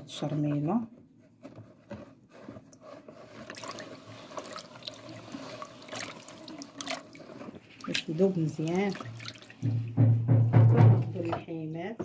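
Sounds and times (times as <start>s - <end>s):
hand squelching in wet marinade: 3.2s - 9.8s.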